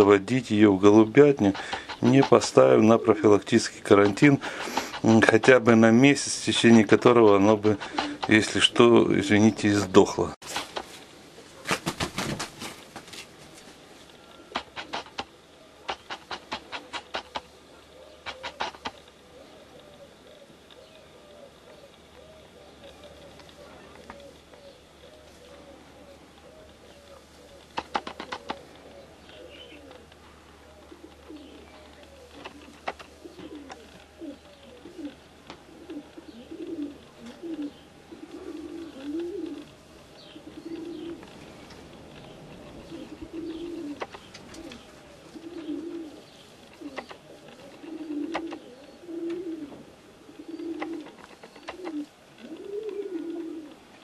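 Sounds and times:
pigeons cooing: 0:00.0 - 0:54.0.

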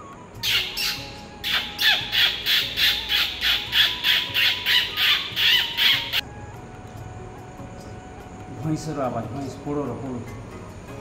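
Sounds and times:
man imitating parrot squawks: 0:00.4 - 0:06.2.

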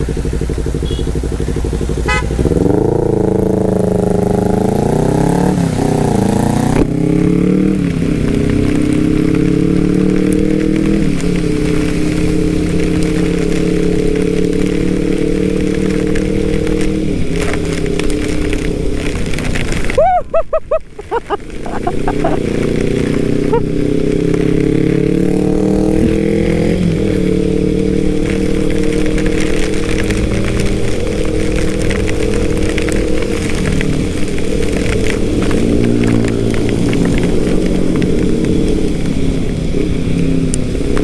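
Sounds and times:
heavy rain hissing: 0:00.0 - 0:41.0
scooter engine revving: 0:21.2 - 0:32.0.

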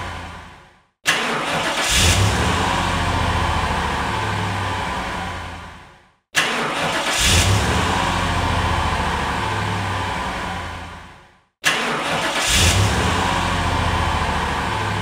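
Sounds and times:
car engine revving and idling: 0:00.0 - 0:06.0, 0:06.6 - 0:15.0
car starter cranking: 0:01.1 - 0:02.5, 0:06.4 - 0:07.7, 0:11.6 - 0:13.1.

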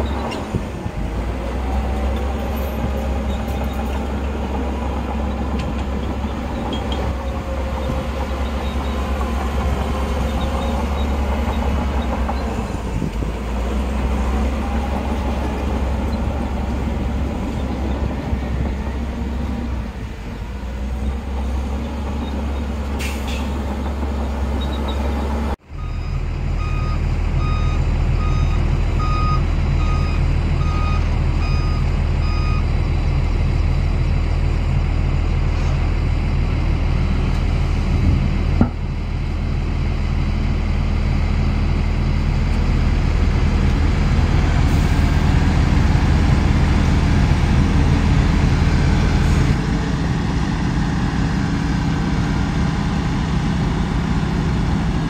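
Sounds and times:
diesel machinery running: 0:00.0 - 0:55.0
reversing alarm beeping: 0:25.8 - 0:32.7.

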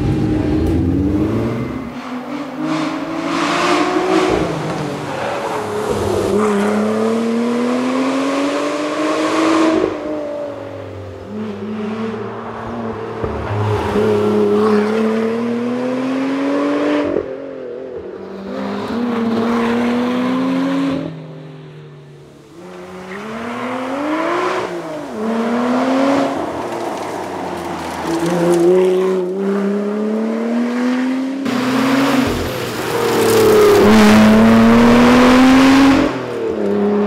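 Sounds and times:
car passing by: 0:22.5 - 0:37.0
car engine accelerating hard: 0:22.7 - 0:37.0.

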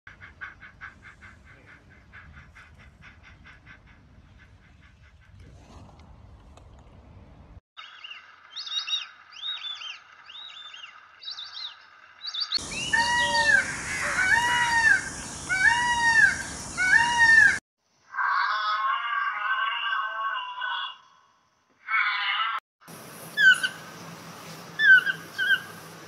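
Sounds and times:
peacock calling: 0:07.8 - 0:17.6, 0:23.3 - 0:24.0, 0:24.8 - 0:26.0
small birds chirping: 0:07.8 - 0:17.6, 0:23.2 - 0:26.0.

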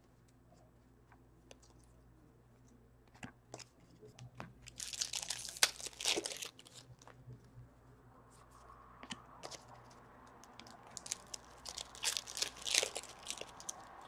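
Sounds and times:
foil wrapper crinkling: 0:04.7 - 0:07.0, 0:10.9 - 0:13.9.

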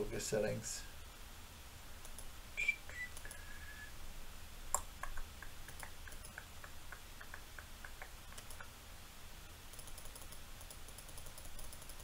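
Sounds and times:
computer mouse clicks: 0:02.0 - 0:02.3, 0:04.8 - 0:06.5, 0:07.2 - 0:08.7, 0:09.7 - 0:12.0.

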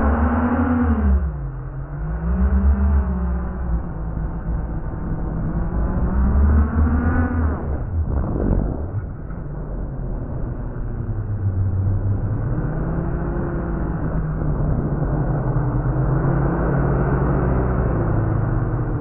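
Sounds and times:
steady rushing noise: 0:00.0 - 0:19.0.

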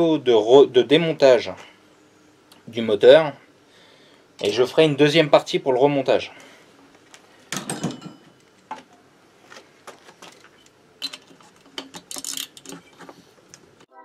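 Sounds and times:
metal knocks on workbench: 0:07.5 - 0:08.4.

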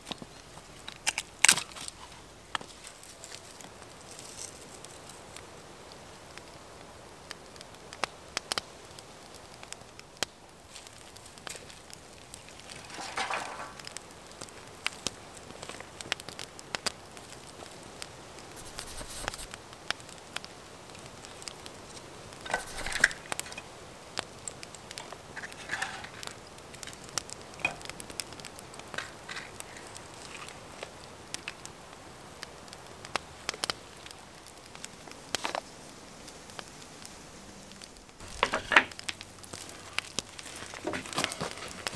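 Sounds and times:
rustling: 0:00.0 - 0:05.4, 0:10.6 - 0:16.3, 0:18.5 - 0:19.6, 0:21.1 - 0:31.7, 0:33.4 - 0:41.9
kindling clicks and crackles: 0:00.0 - 0:06.5, 0:07.3 - 0:35.7, 0:36.3 - 0:41.9.

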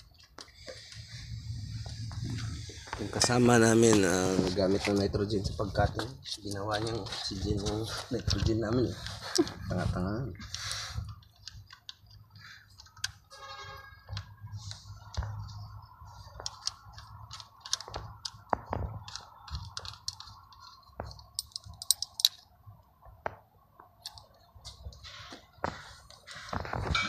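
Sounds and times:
metallic clicks of brass fittings: 0:19.0 - 0:22.5.

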